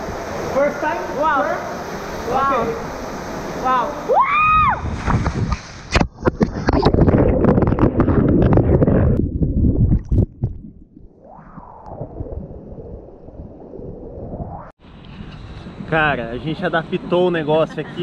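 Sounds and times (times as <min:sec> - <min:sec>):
churning rush of water: 0:00.0 - 0:09.2
person whooping: 0:04.1 - 0:04.8.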